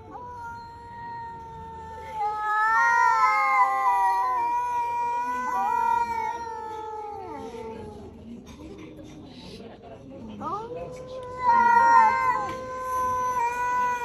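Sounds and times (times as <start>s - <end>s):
higher cat yowl: 0.0s - 8.2s, 10.4s - 14.0s
low wavering cat yowl: 0.0s - 8.3s, 10.4s - 14.0s.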